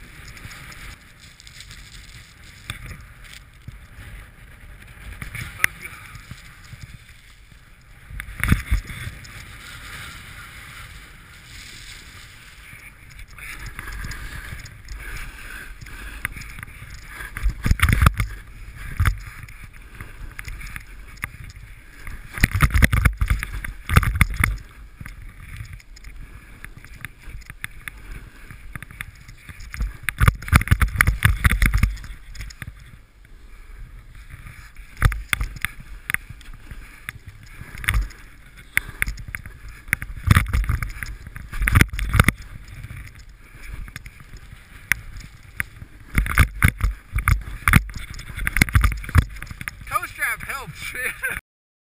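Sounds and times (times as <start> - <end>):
wind on microphone: 0.0 - 50.5
snowboard scraping over snow: 0.0 - 51.4.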